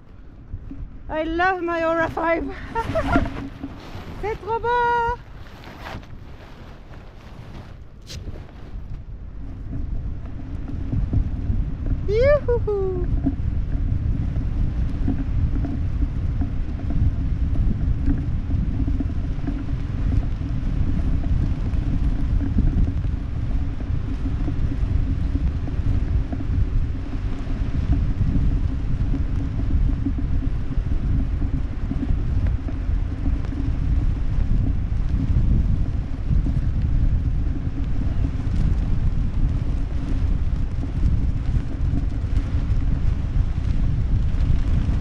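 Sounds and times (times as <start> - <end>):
wind buffeting microphone: 0.0 - 45.0.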